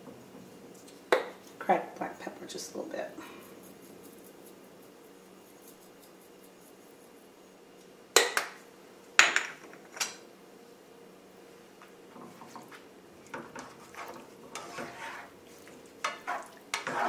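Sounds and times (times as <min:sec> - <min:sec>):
kitchenware clinking and clattering: 0:09.2 - 0:10.2, 0:16.0 - 0:17.0
spatula scraping in a skillet: 0:12.3 - 0:17.0.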